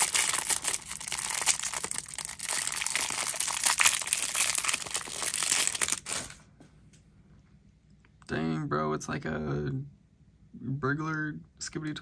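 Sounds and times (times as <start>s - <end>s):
plastic wrapper crinkling: 0.0s - 6.4s.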